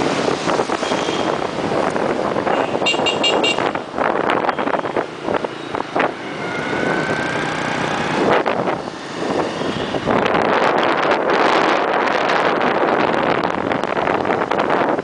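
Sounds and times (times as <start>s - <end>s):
scooter traffic passing: 0.0s - 15.0s
wind buffeting microphone: 0.0s - 15.0s
high horn beeps: 2.5s - 3.8s.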